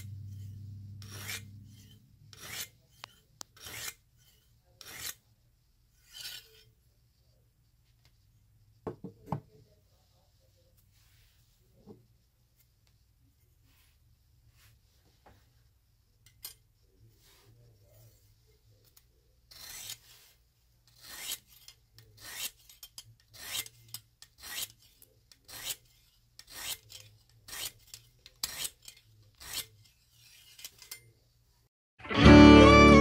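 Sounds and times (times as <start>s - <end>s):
sharpening stone rasping on steel: 0.0s - 5.3s, 5.9s - 6.8s, 19.5s - 31.1s.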